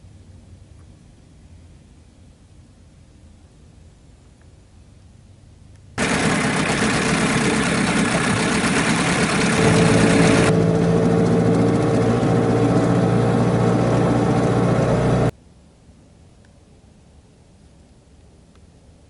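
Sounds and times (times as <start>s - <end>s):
outboard motor running: 6.0s - 15.3s.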